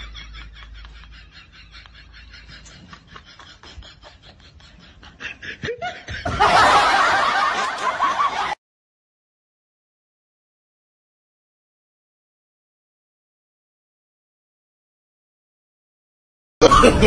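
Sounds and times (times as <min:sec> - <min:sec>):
person snickering: 0:00.0 - 0:06.4, 0:16.6 - 0:17.0.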